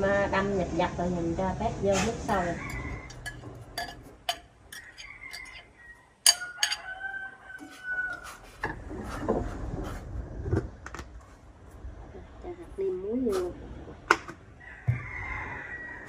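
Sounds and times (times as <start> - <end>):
metal ladle stirring in pot: 2.1 - 10.1
rooster crowing: 2.3 - 3.6, 4.7 - 8.6, 14.6 - 16.0.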